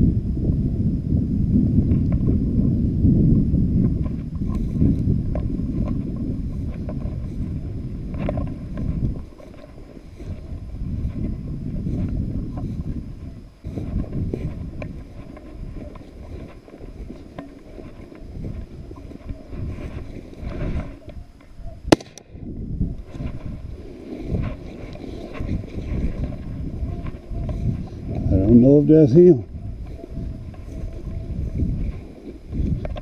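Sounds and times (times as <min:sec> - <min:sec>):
wind buffeting microphone: 0:00.0 - 0:33.0
dry grass and brush rustling: 0:01.6 - 0:33.0
sharp loud crack: 0:21.9 - 0:22.3.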